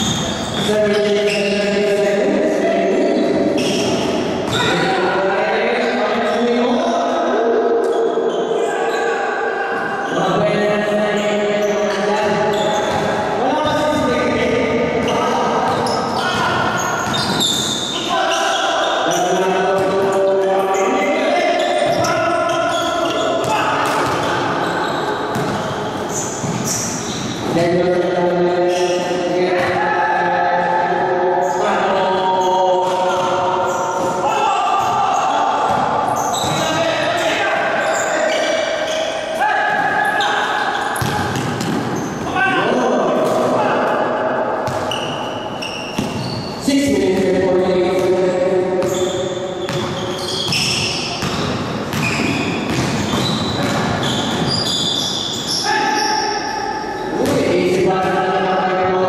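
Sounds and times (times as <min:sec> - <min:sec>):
sneaker squeaks: 0:00.0 - 0:04.9, 0:07.8 - 0:14.2, 0:15.0 - 0:29.8, 0:31.4 - 0:44.0, 0:44.6 - 0:47.3, 0:47.9 - 0:57.4
basketball bouncing: 0:25.3 - 0:26.8, 0:35.6 - 0:36.8, 0:41.0 - 0:42.0, 0:46.0 - 0:54.5
players shouting: 0:33.1 - 0:41.5.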